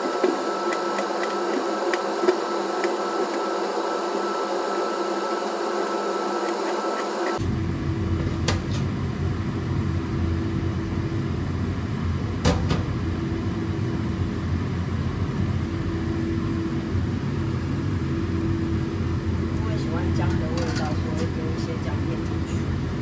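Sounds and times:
low mechanical rumble: 7.3s - 23.0s.

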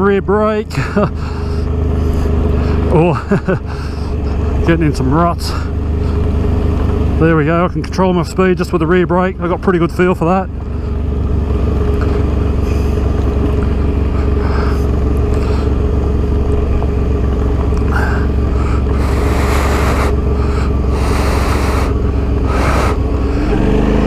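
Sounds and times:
motorcycle engine running: 0.0s - 24.0s
hiss bursts: 19.0s - 20.2s, 20.9s - 23.0s.

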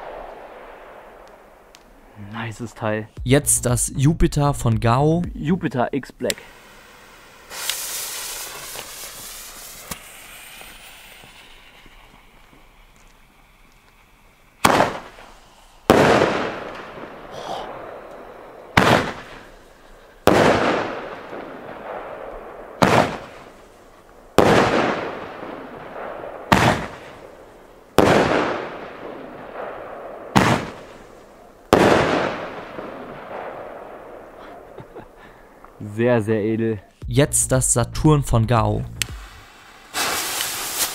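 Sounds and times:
firework launch reports: 2.2s - 12.9s, 18.7s - 19.6s, 35.8s - 40.9s
firework shell bursting crack: 6.3s - 17.3s, 18.0s - 19.7s, 39.0s - 40.9s.

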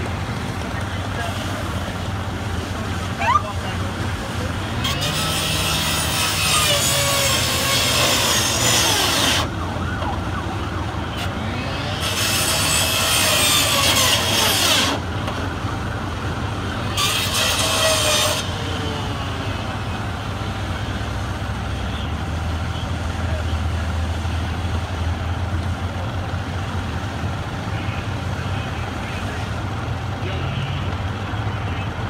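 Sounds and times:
fire hose spraying water: 0.0s - 18.7s, 19.5s - 32.0s
fire engine humming: 0.0s - 32.0s
faint siren wails: 8.5s - 12.1s.

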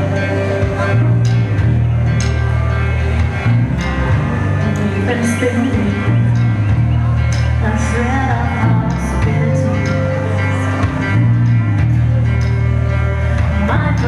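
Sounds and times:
live rock band: 0.0s - 14.0s
woman singing: 4.6s - 6.2s, 7.6s - 10.4s, 13.5s - 14.0s.

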